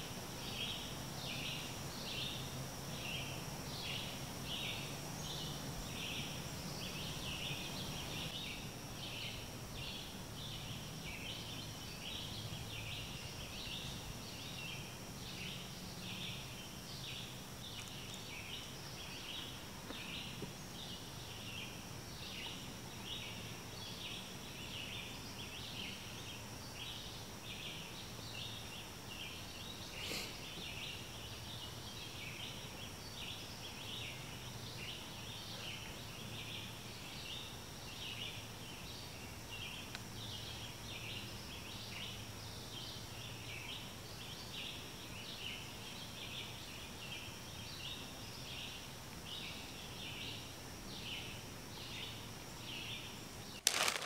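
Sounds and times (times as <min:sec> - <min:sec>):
high-pitched hiss-like tone: 0:00.0 - 0:42.0.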